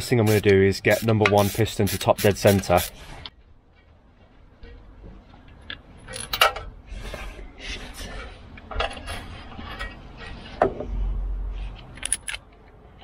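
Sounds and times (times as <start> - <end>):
metal socket clinking and scraping: 6.0 - 6.6, 11.9 - 12.5.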